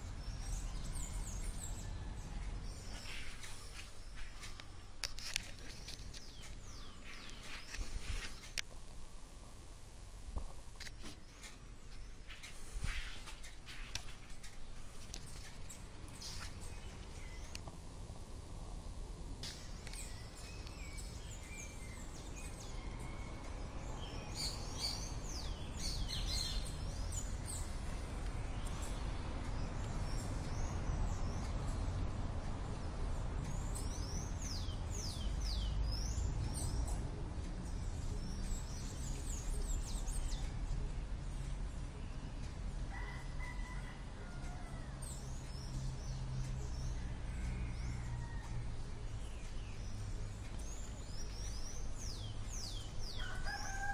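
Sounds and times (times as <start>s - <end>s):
steady low rumble: 0.0s - 42.9s.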